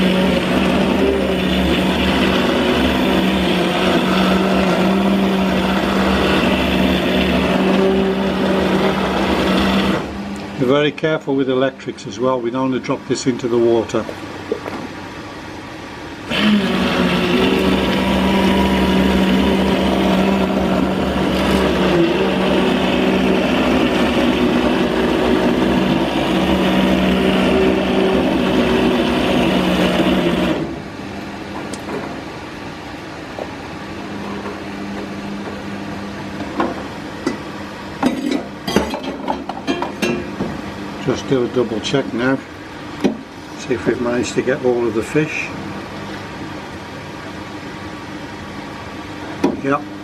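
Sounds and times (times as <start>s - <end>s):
stick blender motor humming: 0.0s - 10.9s, 16.2s - 31.8s.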